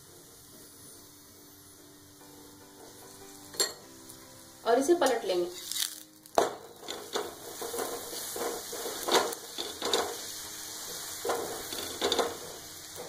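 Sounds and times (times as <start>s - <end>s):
flatbread sizzling in oil: 0.0s - 13.0s
metal spatula scraping and tapping: 6.6s - 13.0s.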